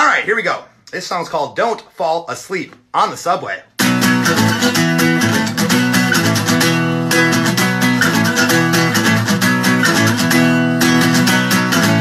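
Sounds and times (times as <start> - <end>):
acoustic guitar strumming: 3.8 - 12.0.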